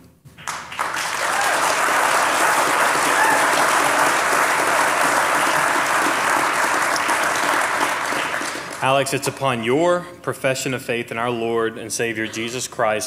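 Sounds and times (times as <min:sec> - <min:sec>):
crowd applauding: 0:00.4 - 0:09.2.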